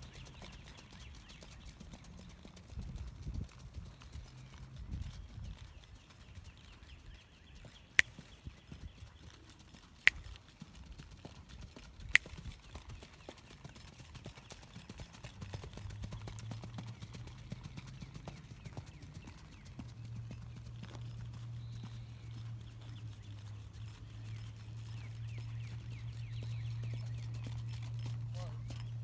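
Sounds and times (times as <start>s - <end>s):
hoofbeats on dirt: 0.0s - 29.0s.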